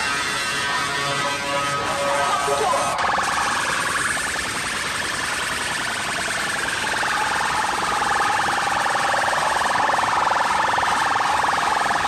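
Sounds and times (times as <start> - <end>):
harsh buzzing electronic tone: 0.0 - 4.6.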